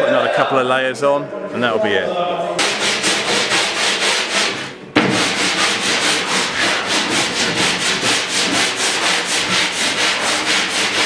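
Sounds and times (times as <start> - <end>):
table saw cutting wood: 2.6 - 11.0.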